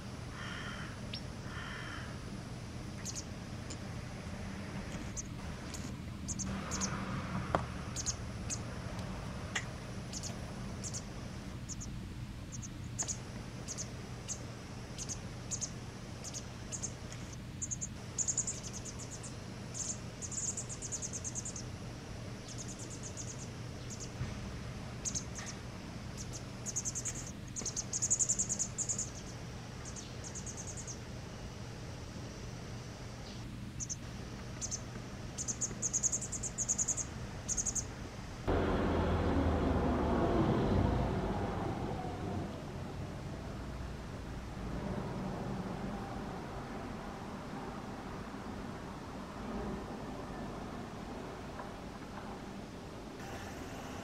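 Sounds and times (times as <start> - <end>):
low hum: 0.0 - 54.0
fledglings begging chirps: 3.0 - 3.9, 4.9 - 7.1, 7.8 - 21.8, 22.4 - 24.2, 25.0 - 31.1, 33.0 - 37.9.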